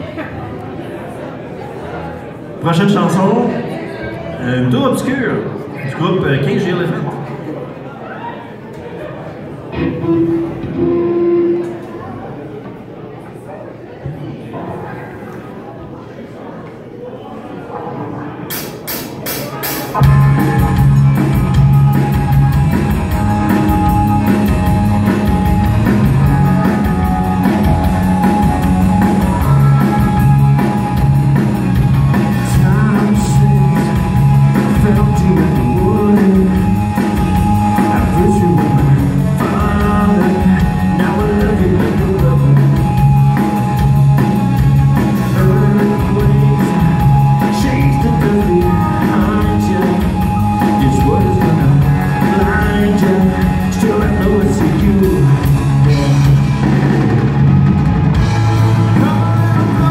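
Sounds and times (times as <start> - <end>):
live rock band playing: 9.7 - 12.1, 18.5 - 59.9.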